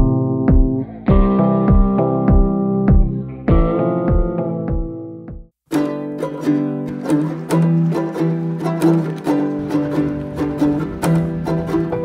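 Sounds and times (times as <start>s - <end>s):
chords over a steady beat: 0.0s - 5.5s.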